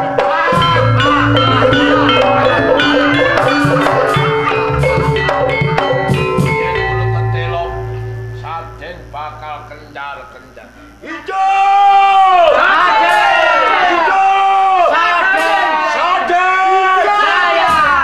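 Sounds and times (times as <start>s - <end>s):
hand drum strokes: 0.0s - 8.9s
deep gong tones: 0.0s - 10.5s
struck metallophones: 0.0s - 11.0s.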